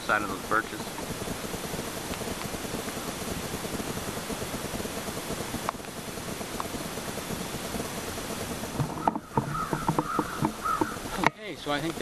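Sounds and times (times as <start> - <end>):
light rain hissing: 0.0 - 12.0
small pops: 0.1 - 12.0
ravens calling: 8.7 - 11.8.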